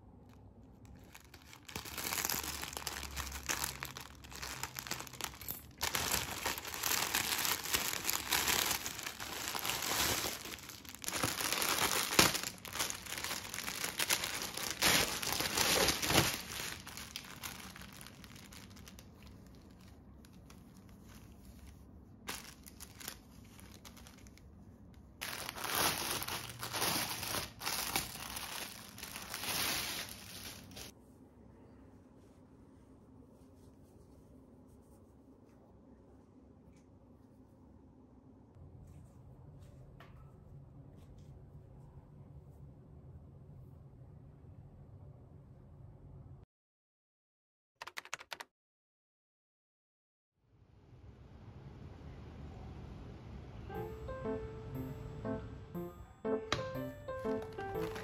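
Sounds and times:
plastic bag crinkling: 0:00.9 - 0:24.4, 0:25.2 - 0:30.9, 0:57.4 - 0:58.0.

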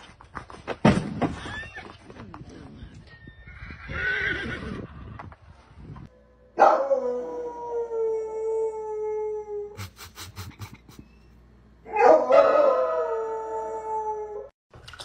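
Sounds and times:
dog howling: 0:06.6 - 0:09.8, 0:11.9 - 0:14.5.

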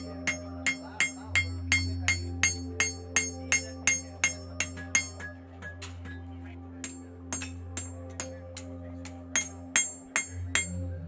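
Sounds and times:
hammer ringing on anvil: 0:00.0 - 0:05.8, 0:06.8 - 0:10.8.

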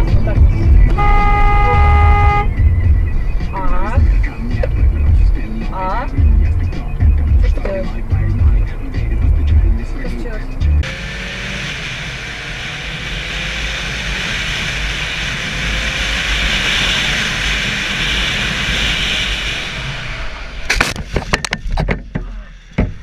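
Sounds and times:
moving vehicle rumble: 0:00.0 - 0:23.0
sharp knocks: 0:20.7 - 0:23.0.

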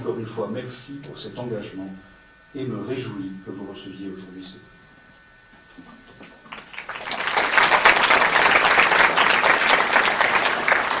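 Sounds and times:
audience applauding: 0:06.4 - 0:11.0.

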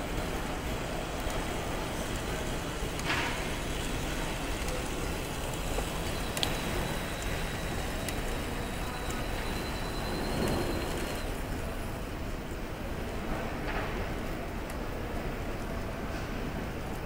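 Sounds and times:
faint high whine: 0:00.0 - 0:12.9
crowd rumble in hall: 0:00.0 - 0:17.0
click: 0:06.4 - 0:06.6.

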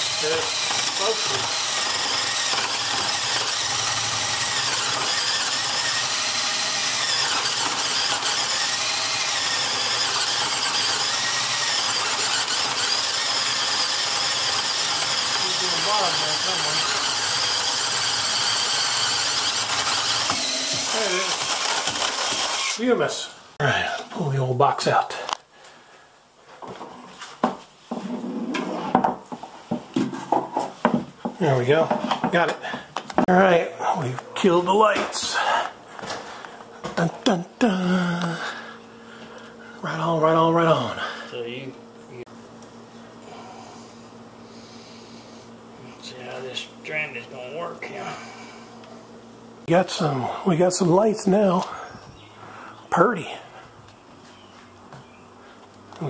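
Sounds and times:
cordless drill boring wood: 0:00.0 - 0:23.1.

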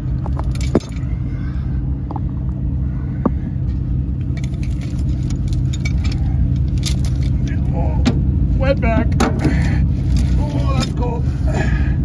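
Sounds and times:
truck engine idling: 0:00.0 - 0:12.0
metal chain clinking and jangling: 0:00.2 - 0:01.1, 0:04.3 - 0:07.7, 0:09.4 - 0:11.2.

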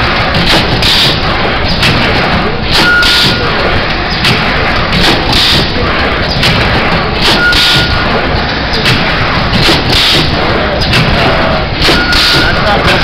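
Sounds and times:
stamping machine din: 0:00.0 - 0:13.0.

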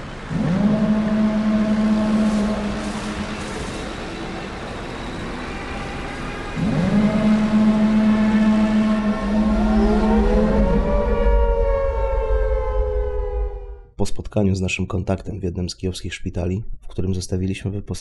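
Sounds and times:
air-raid siren winding up: 0:00.3 - 0:13.9
low rumble: 0:06.6 - 0:14.0.

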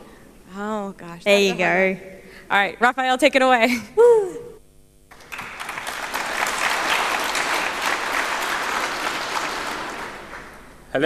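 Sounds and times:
audience applauding: 0:05.1 - 0:10.8.

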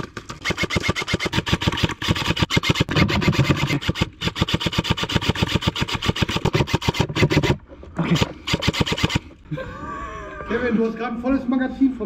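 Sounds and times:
airsoft rifle firing full auto: 0:00.0 - 0:07.6, 0:08.5 - 0:09.2.

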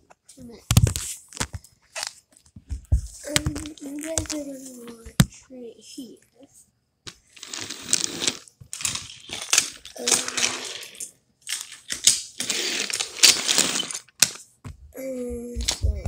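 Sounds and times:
toy pieces clattering: 0:07.2 - 0:14.4.

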